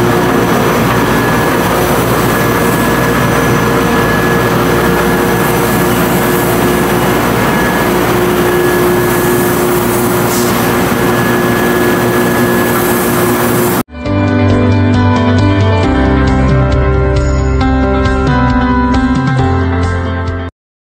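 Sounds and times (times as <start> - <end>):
machine whining tones: 0.0 - 13.9.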